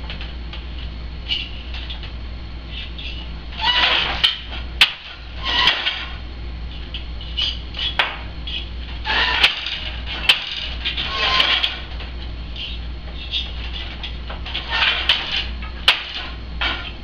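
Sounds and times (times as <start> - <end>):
shuttle sliding with rustling whirs: 0.2 - 17.0.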